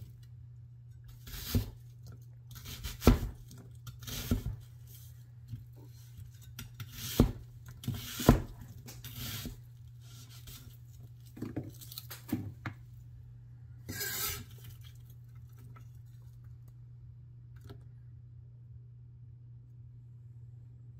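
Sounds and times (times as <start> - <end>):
cleaver slicing onion: 1.1 - 11.2, 13.9 - 14.7
blade scraping across board: 13.9 - 14.6.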